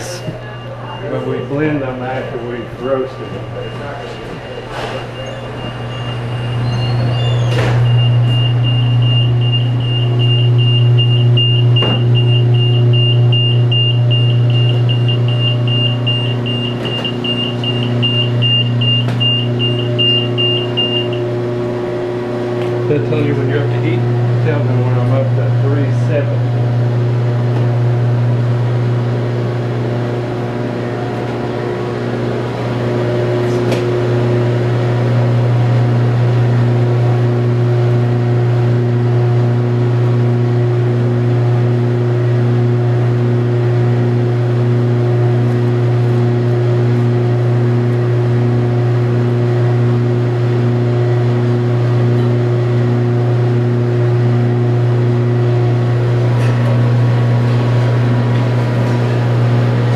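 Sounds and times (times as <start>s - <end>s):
coffee roaster machine hum: 0.0s - 59.9s.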